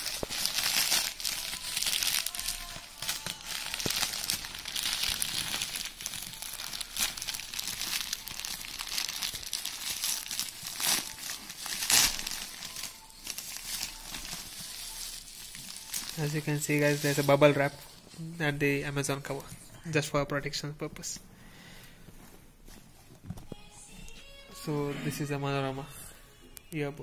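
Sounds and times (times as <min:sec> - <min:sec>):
plastic mailer and bubble wrap crinkling: 0:00.0 - 0:21.2.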